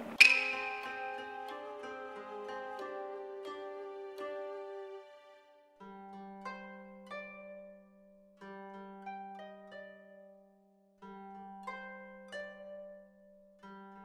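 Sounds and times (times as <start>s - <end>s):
held low note: 0.0s - 5.1s
plucked string notes: 0.0s - 10.3s.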